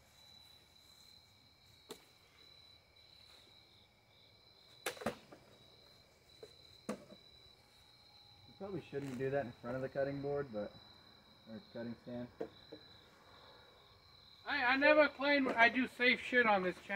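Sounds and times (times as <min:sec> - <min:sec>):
crickets chirping: 0:00.0 - 0:16.9
small knocks: 0:12.4 - 0:12.9.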